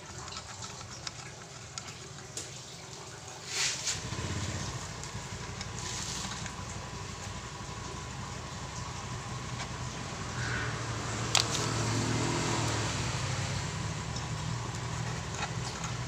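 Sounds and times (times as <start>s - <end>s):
vehicle engine rumble: 3.8s - 16.0s.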